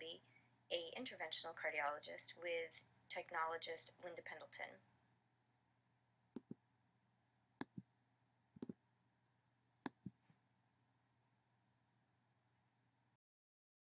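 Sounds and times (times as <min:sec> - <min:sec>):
computer mouse clicks: 0:06.3 - 0:06.6, 0:07.6 - 0:07.9, 0:08.6 - 0:08.8, 0:09.8 - 0:10.2.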